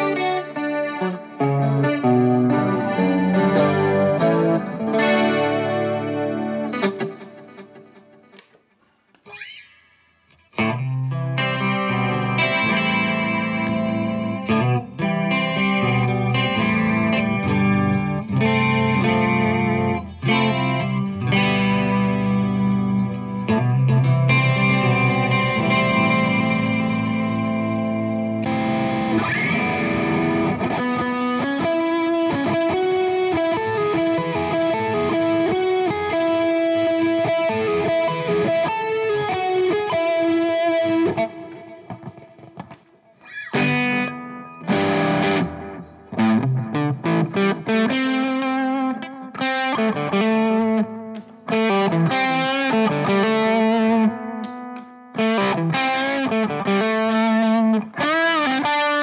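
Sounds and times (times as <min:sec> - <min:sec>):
crunchy guitar rhythm riff: 0:00.0 - 0:59.0
distorted electric guitar lead: 0:00.0 - 0:59.0.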